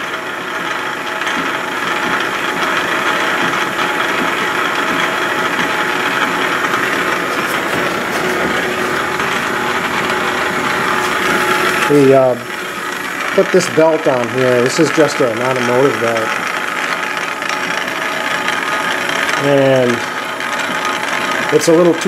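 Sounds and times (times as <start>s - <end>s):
metal lathe running: 0.0s - 22.0s
fine rapid clatter: 0.2s - 22.0s.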